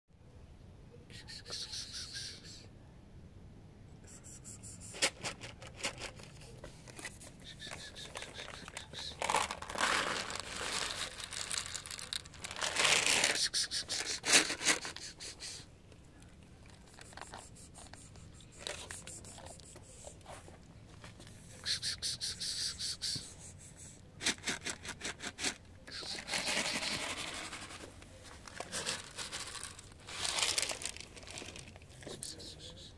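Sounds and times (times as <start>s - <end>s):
kibble shaken from plastic bottle: 4.6s - 15.6s, 16.7s - 20.4s, 24.2s - 32.5s
cat crunching kibble: 7.7s - 15.0s, 28.4s - 32.2s.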